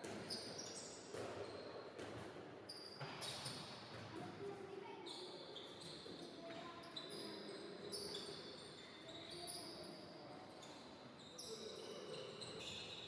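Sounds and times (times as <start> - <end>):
sports hall background noise: 0.0 - 13.0.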